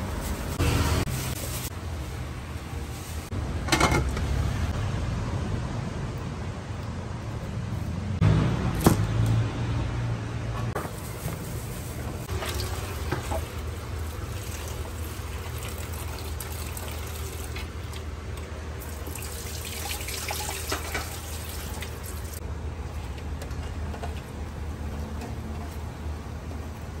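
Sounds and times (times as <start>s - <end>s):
tap water running and splashing: 12.3s - 22.4s.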